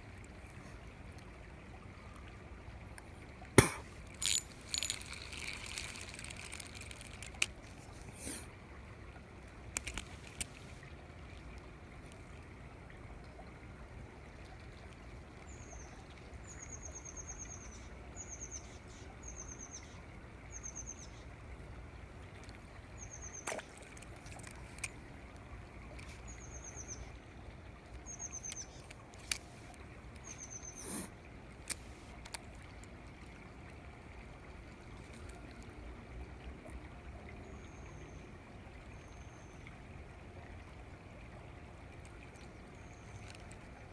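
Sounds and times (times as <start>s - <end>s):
small bird chirping: 28.1s - 28.9s.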